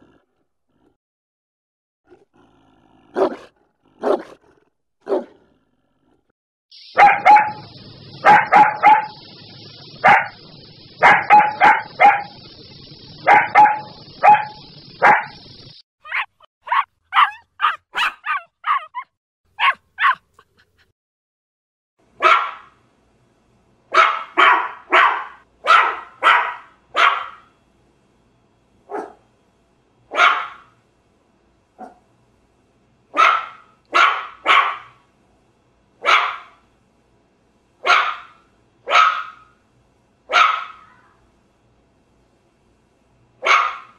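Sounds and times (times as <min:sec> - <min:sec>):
puppies barking in high yaps: 0:06.9 - 0:09.2, 0:16.0 - 0:20.2, 0:22.2 - 0:22.7, 0:33.2 - 0:35.0, 0:37.8 - 0:39.4, 0:40.3 - 0:41.0, 0:43.4 - 0:43.9.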